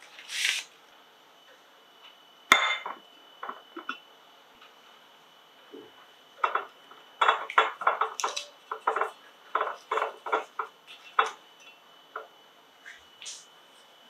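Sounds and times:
paper tea bag crinkling: 0.0s - 0.7s.

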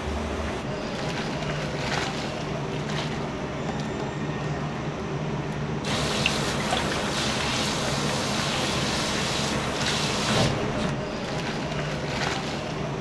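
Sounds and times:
pan boiling and bubbling: 5.9s - 10.6s
running water: 5.9s - 12.8s.

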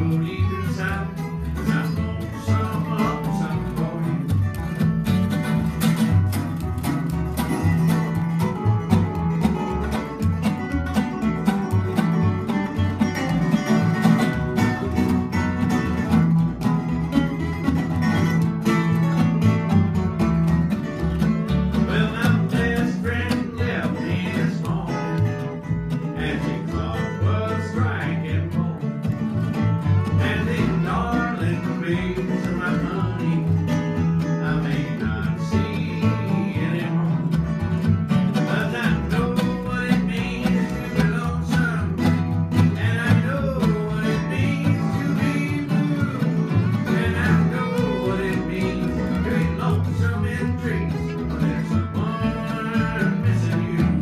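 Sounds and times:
man singing into microphone: 0.0s - 4.4s, 21.9s - 25.3s, 26.2s - 28.9s, 30.2s - 33.6s, 34.4s - 37.3s, 38.5s - 42.1s, 42.7s - 54.0s
plucked upright bass: 0.0s - 54.0s
strummed guitars: 0.0s - 54.0s.

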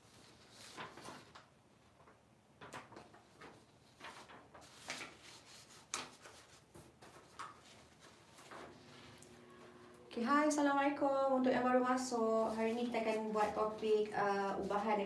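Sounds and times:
faint clicks and rustles: 0.0s - 9.4s.

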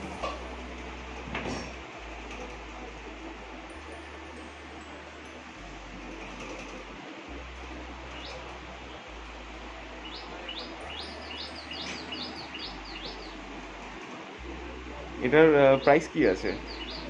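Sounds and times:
small bird chirping: 10.0s - 13.4s, 15.7s - 17.0s.

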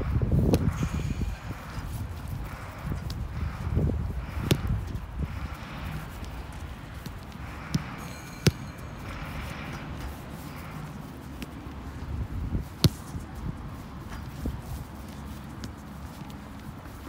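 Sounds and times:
boot kicking football: 0.4s - 2.2s, 4.2s - 5.0s, 6.0s - 8.6s, 12.6s - 13.4s.

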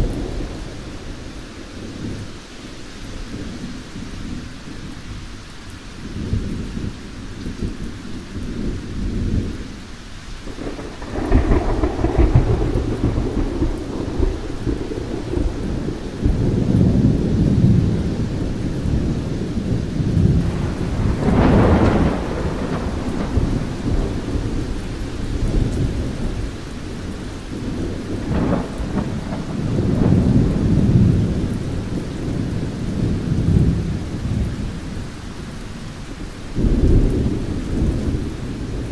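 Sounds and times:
rolling thunder: 0.0s - 2.4s, 10.4s - 38.9s
steady rain: 0.0s - 38.9s.

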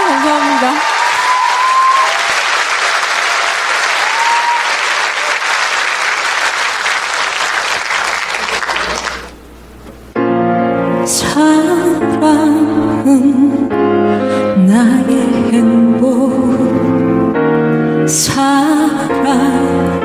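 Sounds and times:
audience applauding: 0.0s - 9.4s.

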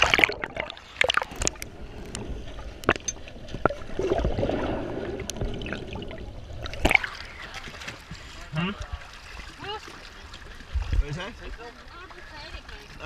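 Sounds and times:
water gurgling underwater: 0.0s - 7.8s
water splash: 0.0s - 13.0s.

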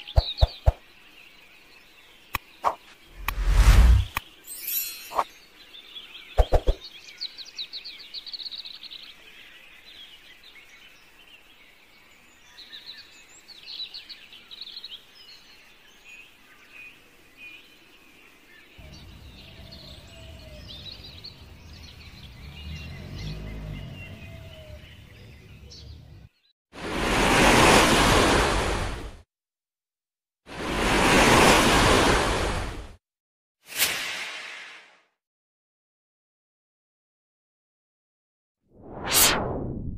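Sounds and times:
small birds chirping and trilling: 0.0s - 3.3s, 4.0s - 26.5s.

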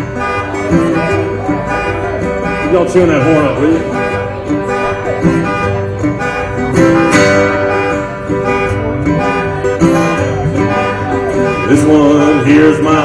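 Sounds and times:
acoustic guitar strumming: 0.0s - 13.0s.

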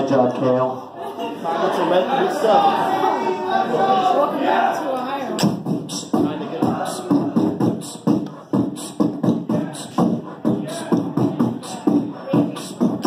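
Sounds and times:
man beatboxing into microphone: 5.4s - 13.0s.

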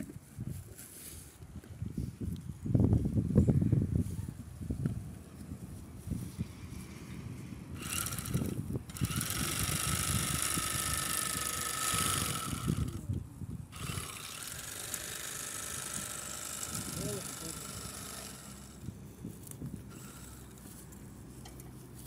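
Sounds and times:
bag-closer sewing machine running: 7.8s - 13.1s, 13.7s - 18.9s.

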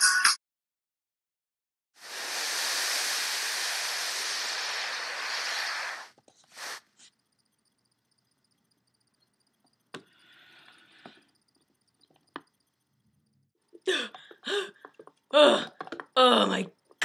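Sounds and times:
steady rushing hiss: 2.0s - 12.7s.

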